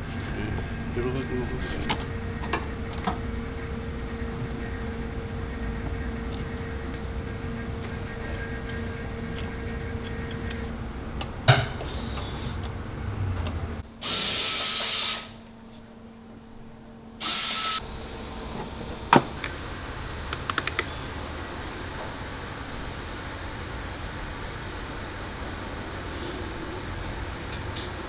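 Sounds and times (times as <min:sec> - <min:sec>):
power tool running: 0:14.0 - 0:15.4, 0:17.2 - 0:18.4.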